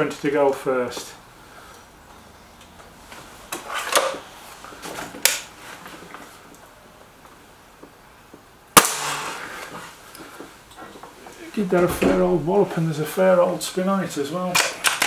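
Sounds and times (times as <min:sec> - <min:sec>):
sharp loud air rifle shot: 0:08.8 - 0:09.7.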